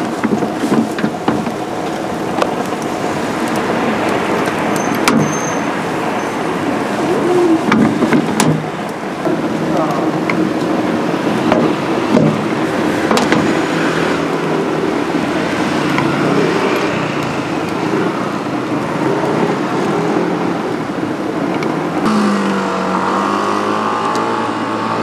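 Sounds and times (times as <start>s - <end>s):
road noise: 0.0s - 25.0s
humming engine: 5.9s - 25.0s.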